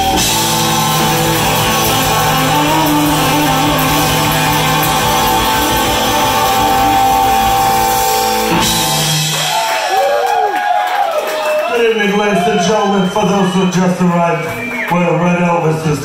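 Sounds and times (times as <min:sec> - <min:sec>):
surf rock band playing: 0:00.0 - 0:10.0
electric guitar: 0:00.0 - 0:10.1
drum kit: 0:00.0 - 0:11.3.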